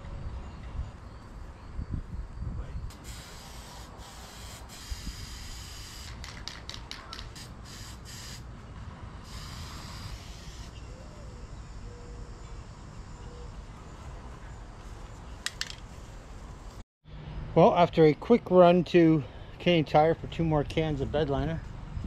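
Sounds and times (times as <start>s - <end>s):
low wind rumble: 0.0s - 4.1s, 19.2s - 22.0s.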